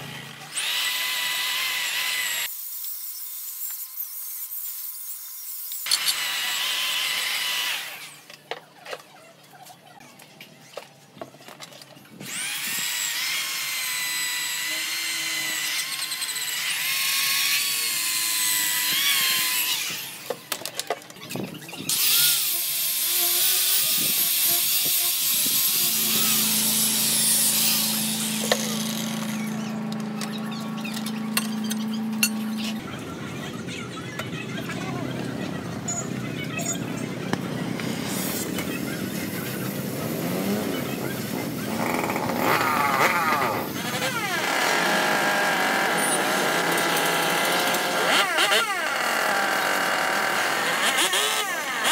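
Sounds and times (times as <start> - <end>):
electric drill grinding rust: 0.0 - 8.4, 12.2 - 20.6, 21.9 - 32.8, 39.9 - 51.9.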